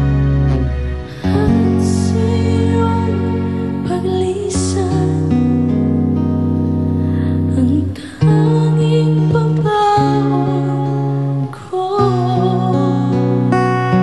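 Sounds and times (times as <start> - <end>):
instrumental accompaniment: 0.0 - 14.0
woman singing slow ballad: 0.0 - 14.0.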